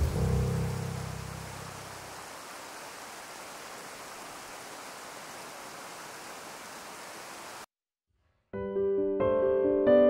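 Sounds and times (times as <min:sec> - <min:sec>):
running water rushing: 0:00.0 - 0:07.7.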